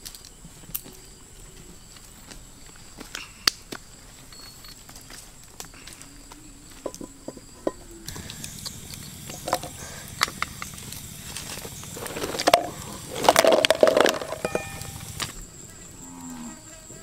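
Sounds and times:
small clicks and crackles: 8.1 - 14.4.

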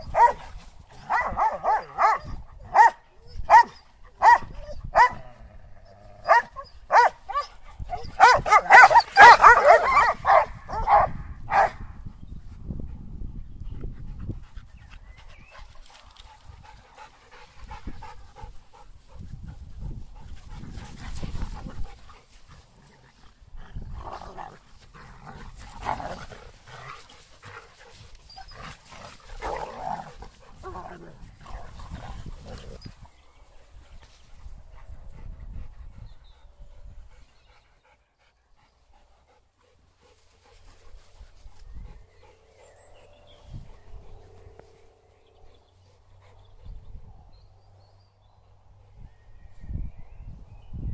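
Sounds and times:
dogs barking: 0.0 - 0.4, 1.0 - 5.2, 6.2 - 11.8
dog yelps: 1.1 - 5.2, 6.2 - 11.7.

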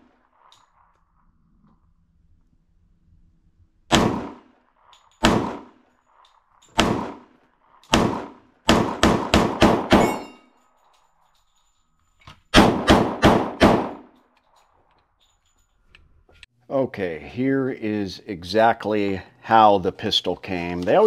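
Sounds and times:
pistol shots: 3.9 - 4.5, 5.2 - 5.8, 6.7 - 10.4, 12.5 - 14.1.

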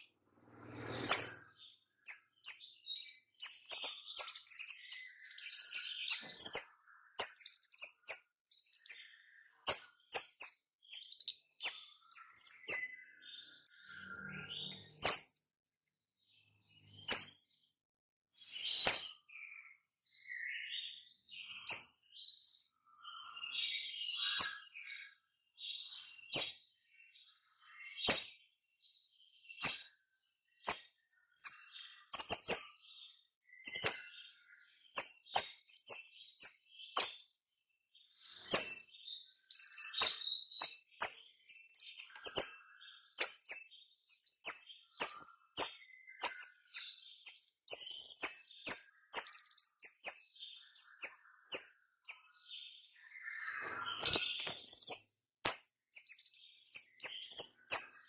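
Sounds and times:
songbird sharp high calls: 0.7 - 13.2, 14.2 - 15.4, 17.0 - 17.4, 30.6 - 32.8, 33.6 - 34.2, 35.0 - 37.3, 39.5 - 52.4, 53.2 - 58.0.

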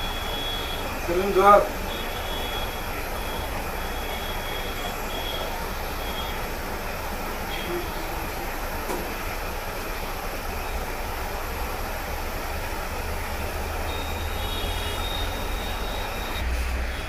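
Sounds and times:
faint high whistle: 0.0 - 0.9, 1.9 - 6.5, 13.9 - 17.0.

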